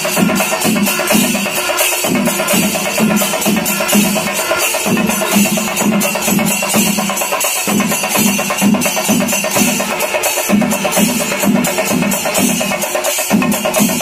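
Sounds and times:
clashing cymbals: 0.0s - 14.0s
drums: 0.0s - 14.0s.

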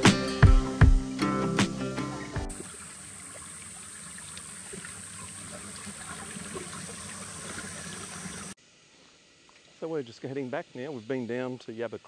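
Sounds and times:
creek water splashing over rocks: 2.5s - 9.8s.

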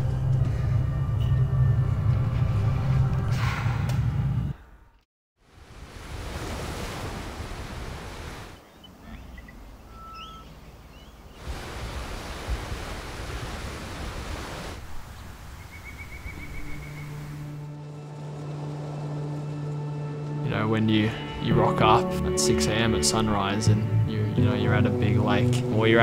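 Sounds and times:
wind: 5.4s - 21.5s
lake water lapping: 5.6s - 20.2s
faint chirps: 8.6s - 11.4s.

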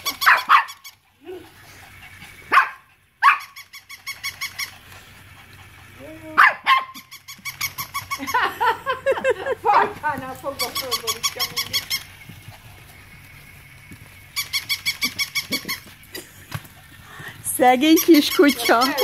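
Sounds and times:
dog barking: 0.2s - 0.8s, 2.5s - 3.6s, 6.4s - 7.1s, 9.7s - 10.0s
toy dog mechanical ticking: 3.4s - 4.8s, 10.5s - 12.2s, 14.4s - 15.8s, 17.5s - 19.0s.

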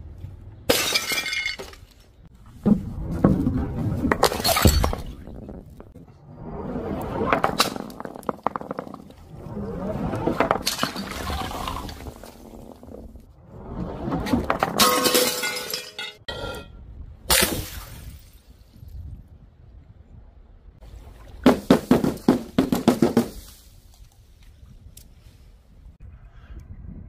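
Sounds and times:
glass shattering: 0.7s - 1.9s, 4.2s - 5.2s, 14.6s - 16.7s
ball rolling on wooden board: 2.4s - 14.8s
glass shards clinking: 14.8s - 16.7s.

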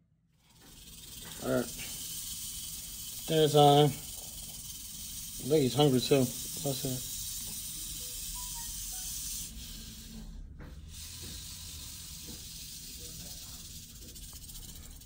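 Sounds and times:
rattlesnake tail rattling: 0.4s - 10.2s, 10.9s - 15.0s.

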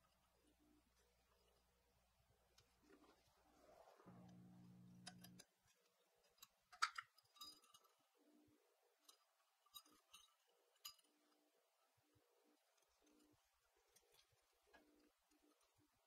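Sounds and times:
wire and pliers clicking on metal: 4.2s - 8.0s.

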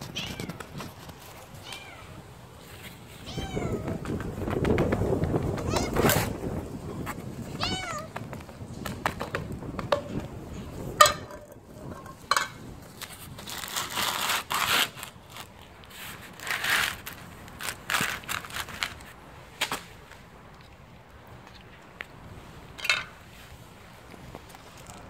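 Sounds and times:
cat crunching dry kibble: 12.9s - 19.2s.

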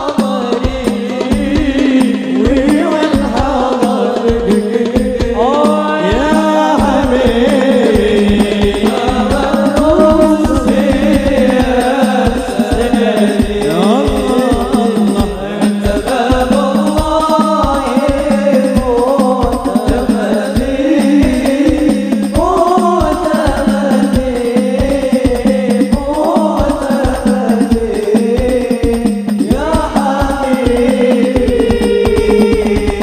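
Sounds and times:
frame drums beating: 0.0s - 33.0s
man singing lead with group: 0.0s - 33.0s.

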